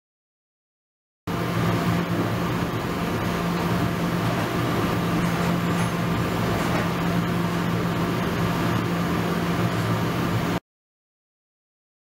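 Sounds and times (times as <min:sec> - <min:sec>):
ultrasonic cleaner hum: 0:01.3 - 0:10.6.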